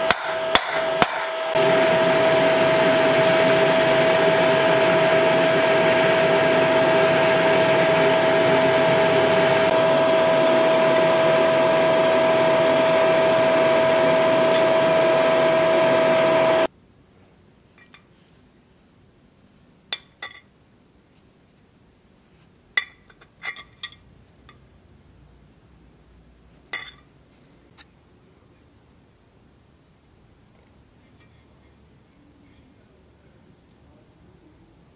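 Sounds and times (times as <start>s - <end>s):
electric grinder whining: 0.0s - 16.7s.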